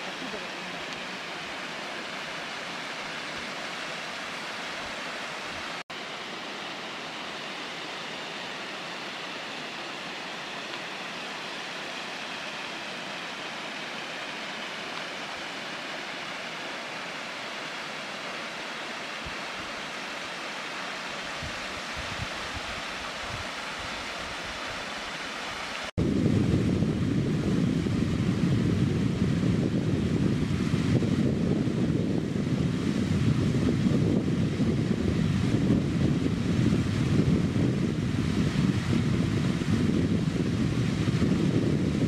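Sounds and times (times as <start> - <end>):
waterfall rushing: 0.0 - 26.0
wind rumble on microphone: 21.2 - 24.8, 26.0 - 42.0.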